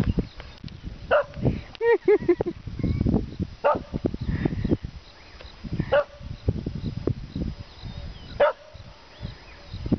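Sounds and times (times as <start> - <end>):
dog barking: 1.1 - 1.3, 3.6 - 3.9, 5.9 - 6.2, 8.4 - 8.7.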